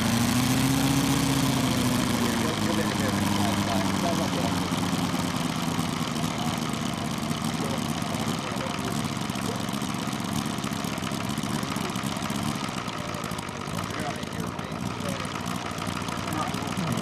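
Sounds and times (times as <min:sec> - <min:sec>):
model aero engine running: 0:00.0 - 0:17.0.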